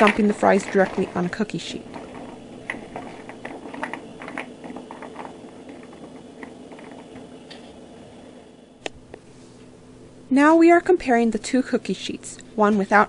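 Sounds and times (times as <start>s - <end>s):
frozen fries clicking on metal sheet: 0.0s - 7.6s
faint steady hum: 0.0s - 13.0s.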